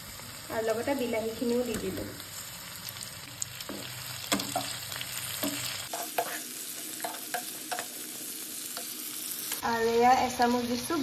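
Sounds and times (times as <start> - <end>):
vegetables sizzling in hot oil: 0.0 - 11.0
spatula scraping and knocking pan: 3.6 - 9.0.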